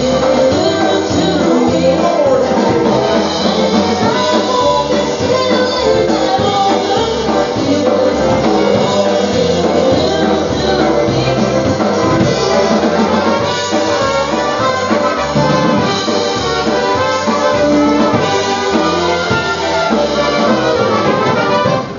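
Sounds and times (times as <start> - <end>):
polka band playing: 0.0 - 21.9.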